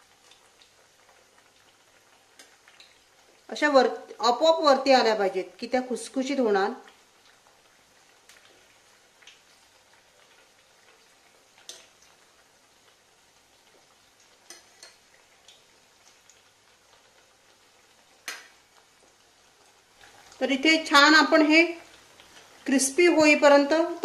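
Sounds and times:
oil sizzling faintly: 0:00.0 - 0:24.0
steel spoon clicking on pan: 0:11.6 - 0:11.9, 0:14.4 - 0:15.0.

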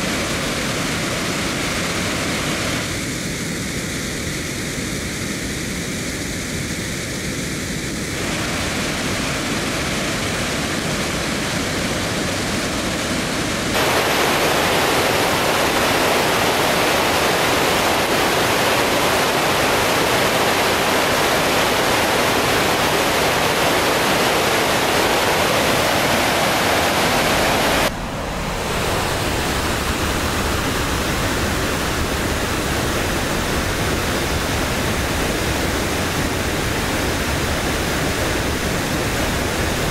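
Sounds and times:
water pouring down spillway shaft: 0:08.2 - 0:39.9.

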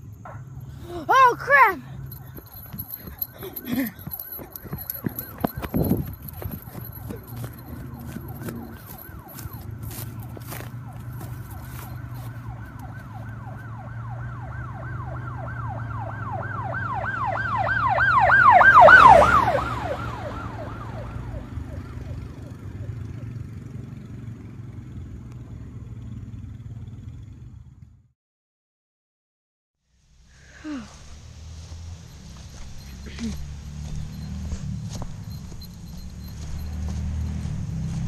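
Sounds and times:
electronic yelp siren: 0:00.3 - 0:23.4.

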